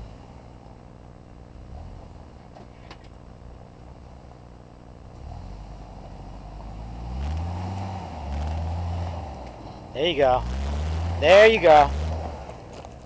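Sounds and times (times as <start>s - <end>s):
truck engine revving: 1.5s - 2.5s, 5.1s - 13.0s.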